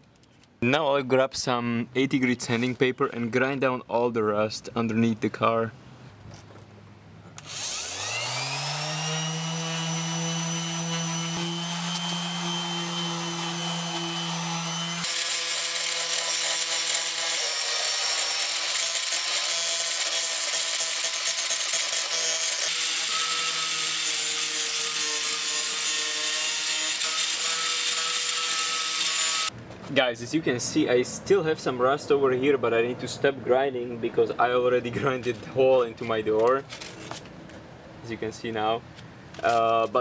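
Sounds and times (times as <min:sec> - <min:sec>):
angle grinder grinding steel: 0:07.4 - 0:29.5
electric sander on sheet metal: 0:07.4 - 0:29.5.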